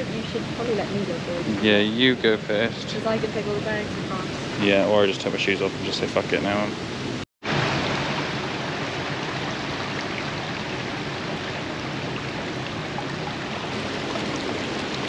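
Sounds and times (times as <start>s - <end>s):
stream rushing over stones: 7.4s - 15.0s.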